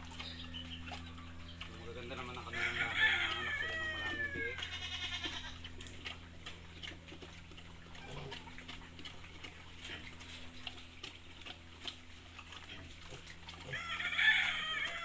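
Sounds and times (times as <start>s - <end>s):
pig chewing: 0.0s - 15.0s
steady low hum: 0.0s - 15.0s.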